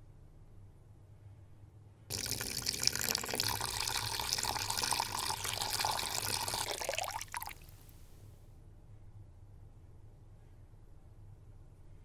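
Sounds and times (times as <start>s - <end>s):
water gushing from hose into tank: 2.1s - 7.7s.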